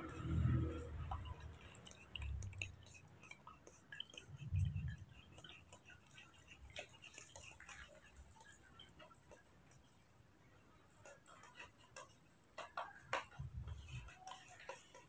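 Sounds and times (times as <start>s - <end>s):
spoon scraping plastic strainer: 11.1s - 15.0s.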